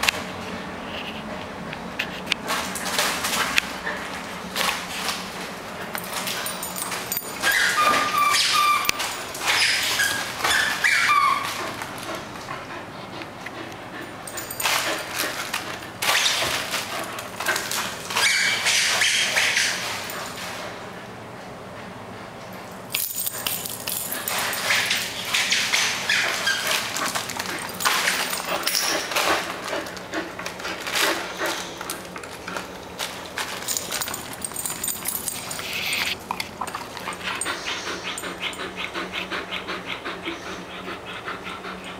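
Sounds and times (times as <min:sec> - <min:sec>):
dog panting rapidly: 0:09.6 - 0:20.4, 0:24.1 - 0:32.7, 0:34.0 - 0:41.9
dog claws scrabbling on tile: 0:22.9 - 0:38.7.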